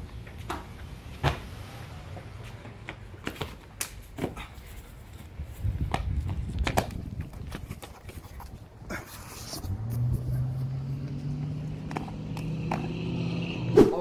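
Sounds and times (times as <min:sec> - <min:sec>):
running footfalls and landings: 0:02.6 - 0:08.8.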